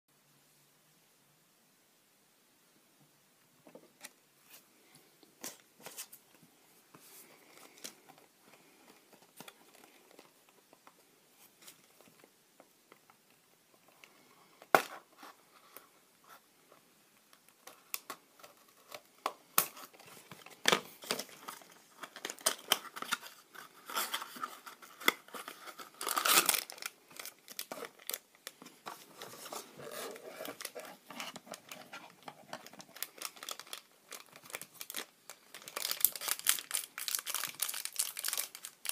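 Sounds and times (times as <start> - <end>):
foil bag crinkling and tearing: 23.9 - 28.3, 29.5 - 38.9.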